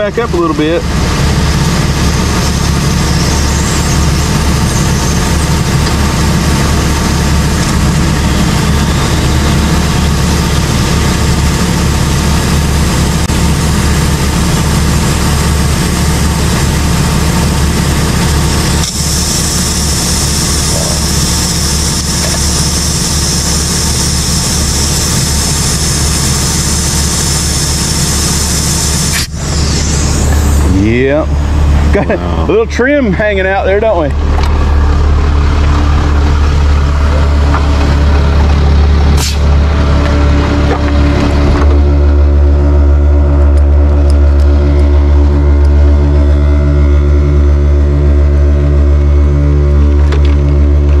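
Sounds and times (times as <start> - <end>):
engine idling: 0.0 - 51.0
air hissing into tire: 17.2 - 30.9, 39.1 - 39.6.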